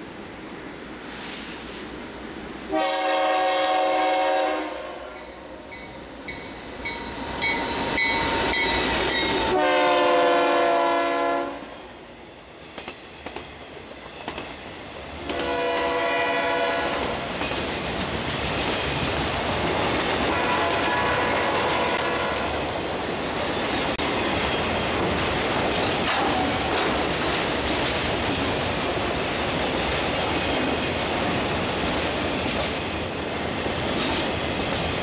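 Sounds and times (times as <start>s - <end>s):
locomotive air horn blasts: 2.7s - 5.2s, 9.4s - 11.8s, 15.2s - 17.3s, 20.3s - 22.6s
freight cars rumbling on rails: 12.5s - 35.0s.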